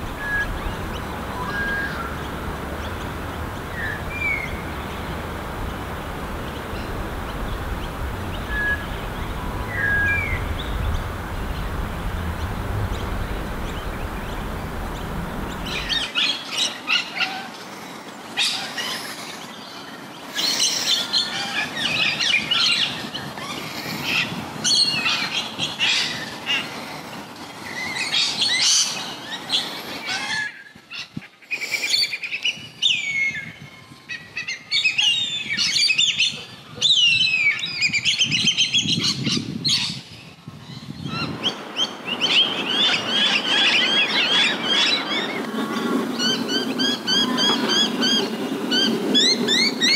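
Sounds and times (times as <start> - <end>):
low background rumble: 0.0 - 16.0
small birds chirping: 0.0 - 16.8.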